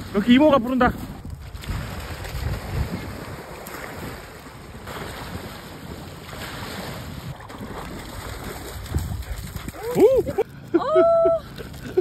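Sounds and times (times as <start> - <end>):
water washing: 0.0 - 10.4
wind buffeting microphone: 0.8 - 4.9, 7.1 - 10.4.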